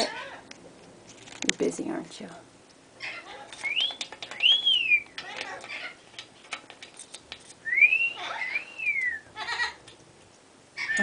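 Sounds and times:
parrot wolf whistle: 3.6 - 5.2, 7.6 - 9.6, 10.8 - 11.0.

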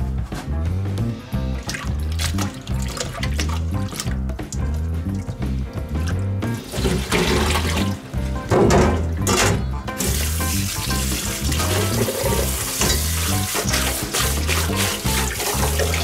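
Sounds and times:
background music with low beat: 0.0 - 16.0
water pouring through strainer: 1.6 - 4.8, 6.0 - 8.1, 10.0 - 16.0.

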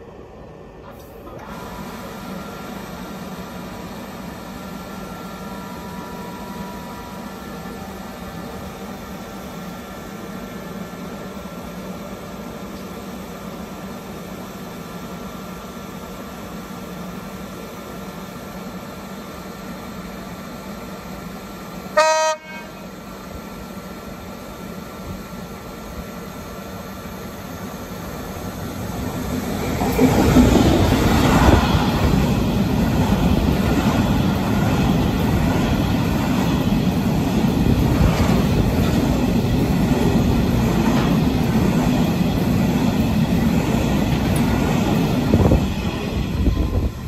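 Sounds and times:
freight train passing: 0.0 - 47.0
wheel clatter over rail joints: 29.5 - 45.6.

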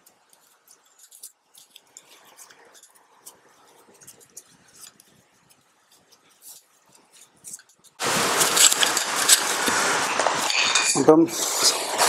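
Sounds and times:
small metal parts clinking: 10.4 - 11.1.

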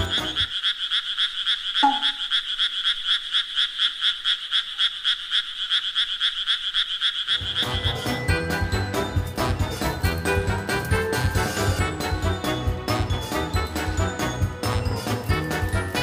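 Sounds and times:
background music: 0.0 - 0.5, 7.4 - 16.0
buzzy pulsing croak: 0.0 - 8.2.

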